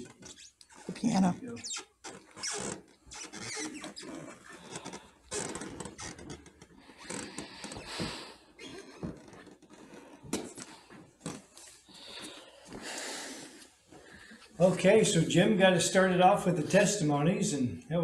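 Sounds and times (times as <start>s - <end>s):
shuffling footsteps: 7.5s - 16.9s.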